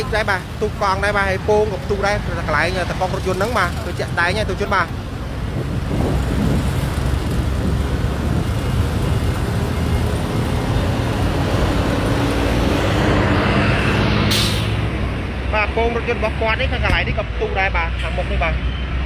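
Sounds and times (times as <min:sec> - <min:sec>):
heavy trucks passing: 0:00.0 - 0:19.0
short sharp hiss: 0:14.3 - 0:14.8.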